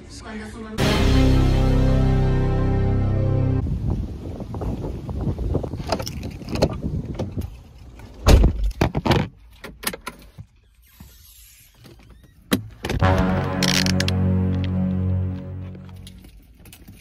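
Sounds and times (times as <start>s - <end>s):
background music: 0.8s - 3.6s, 13.0s - 16.3s.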